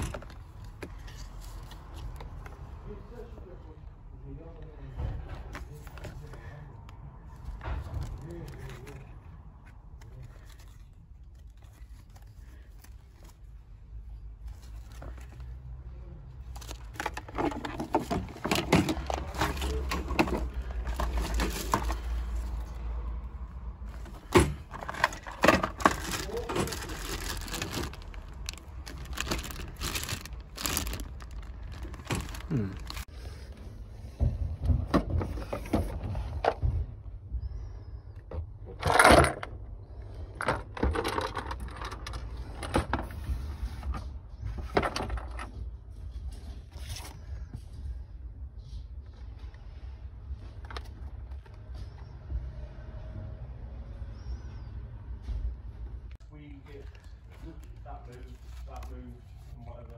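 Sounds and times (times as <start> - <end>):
plastic packaging crinkling: 16.5 - 22.8, 23.9 - 33.1.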